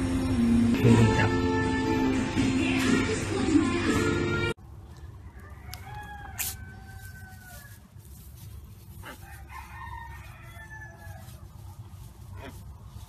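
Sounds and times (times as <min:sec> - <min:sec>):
background music: 0:00.0 - 0:04.6.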